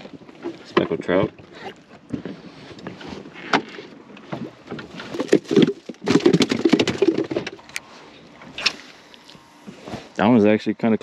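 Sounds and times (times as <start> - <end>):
fish flopping and slapping: 2.0 - 7.6.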